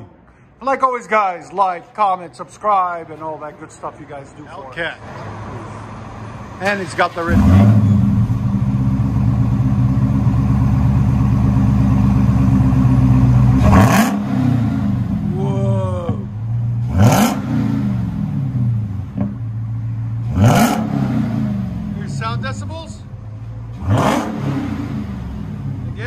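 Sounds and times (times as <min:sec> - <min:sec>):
car engine idling: 0:05.6 - 0:26.0
engine revving: 0:07.0 - 0:23.1, 0:23.7 - 0:26.0.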